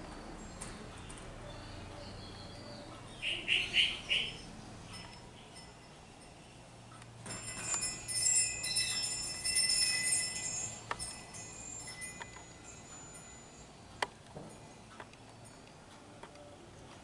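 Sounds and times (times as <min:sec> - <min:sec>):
small bells jingling: 0:04.2 - 0:13.8.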